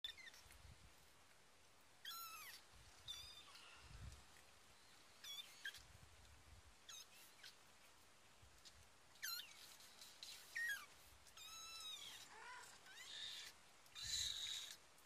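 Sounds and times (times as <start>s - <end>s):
kittens mewing: 2.0s - 3.7s, 10.4s - 14.8s.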